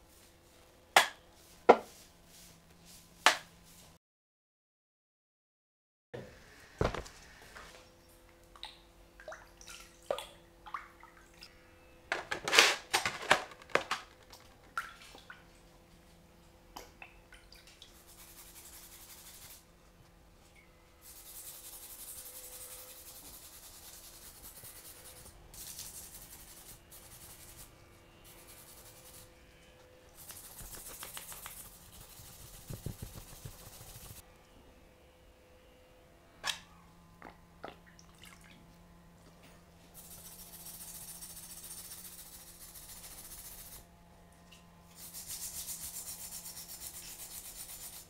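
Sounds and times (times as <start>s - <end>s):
brush scrubbing metal: 18.0s - 19.6s, 21.0s - 29.3s, 30.2s - 34.2s, 40.0s - 43.8s, 44.9s - 48.0s
water splashing and dripping: 37.6s - 38.6s.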